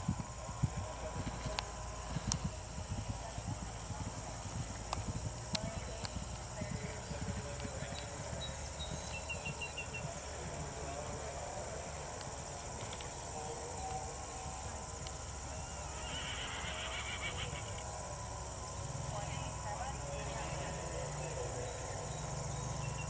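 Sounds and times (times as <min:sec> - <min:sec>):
faint hoofbeats on turf: 0:00.0 - 0:23.0.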